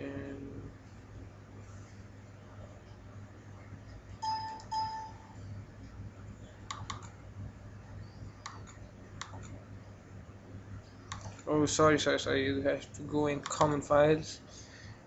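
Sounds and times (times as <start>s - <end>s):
low electrical hum: 0.0s - 15.0s
keyboard and mouse clicks: 6.7s - 7.2s, 8.4s - 9.6s, 11.1s - 11.5s.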